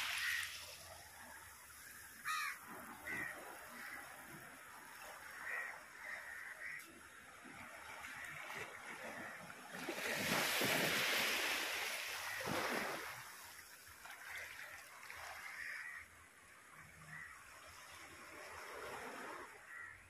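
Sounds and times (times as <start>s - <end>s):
waves splashing against rocks: 0.0s - 1.4s, 7.5s - 15.8s.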